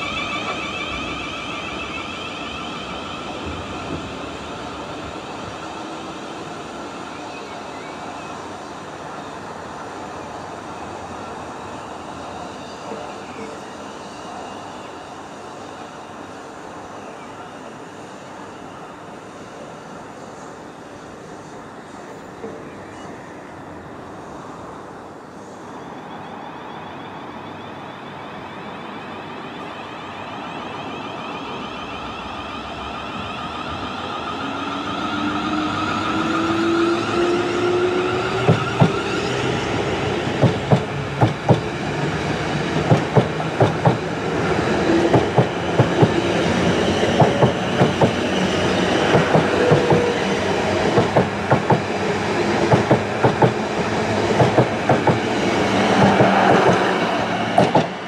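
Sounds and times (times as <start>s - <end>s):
train hum and motor whine: 0.0s - 58.0s.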